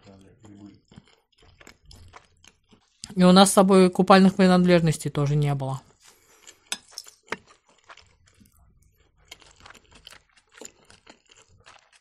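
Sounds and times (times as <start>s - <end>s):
crunchy chewing: 0.0s - 3.1s, 5.8s - 12.0s.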